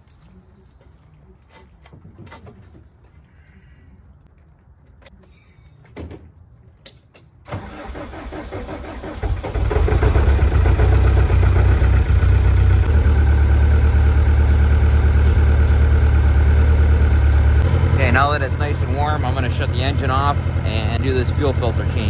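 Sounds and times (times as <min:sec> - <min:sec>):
starter cranking engine: 0:07.5 - 0:22.0
diesel engine idling: 0:07.6 - 0:22.0.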